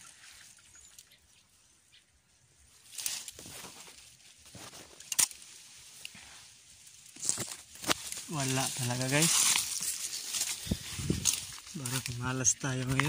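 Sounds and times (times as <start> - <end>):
leaves and branches rustling: 0.0 - 13.0
branch snapping: 2.9 - 4.0, 4.7 - 6.2, 7.0 - 13.0.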